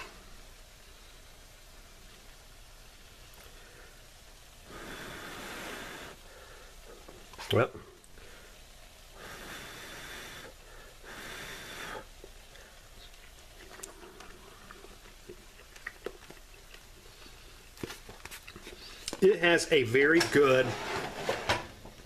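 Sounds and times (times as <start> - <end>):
noisy breaths out: 3.4 - 7.2, 8.1 - 13.0, 18.6 - 19.2
person chewing food: 12.0 - 19.2.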